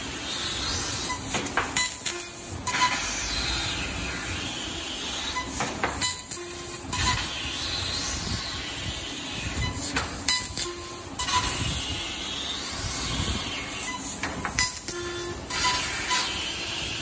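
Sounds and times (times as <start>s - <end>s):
steady gas hiss: 7.2s - 14.3s.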